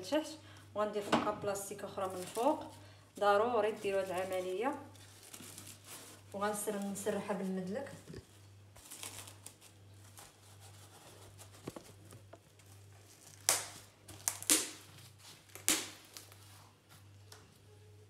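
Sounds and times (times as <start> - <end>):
cling film crinkling: 1.8 - 2.8, 3.6 - 7.7, 8.8 - 16.8.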